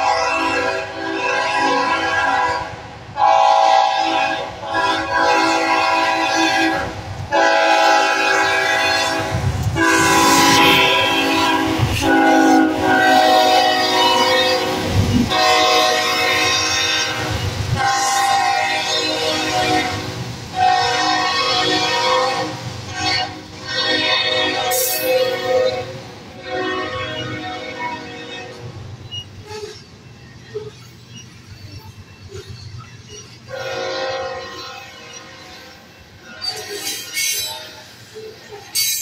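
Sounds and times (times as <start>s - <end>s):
locomotive air horn blasts: 0.0s - 28.7s, 33.5s - 37.9s
passing train rumble: 0.0s - 39.0s.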